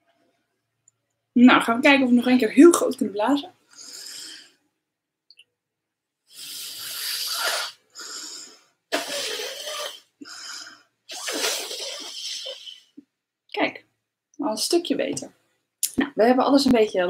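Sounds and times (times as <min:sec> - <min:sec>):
woman blowing breathy puffs: 0:03.7 - 0:04.6, 0:06.3 - 0:13.0.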